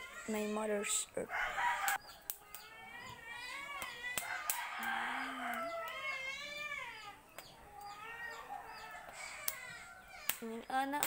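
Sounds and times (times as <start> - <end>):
rooster crowing: 1.2 - 2.2, 4.1 - 6.3.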